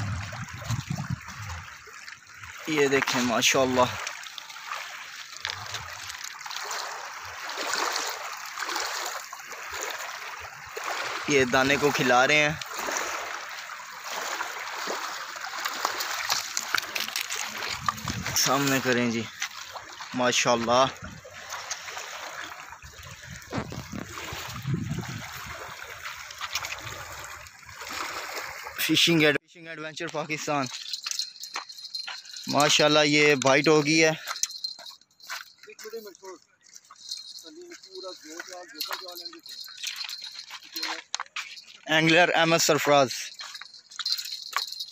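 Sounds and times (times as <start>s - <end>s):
small waves lapping on pebbles: 0.0s - 29.3s, 30.3s - 44.9s.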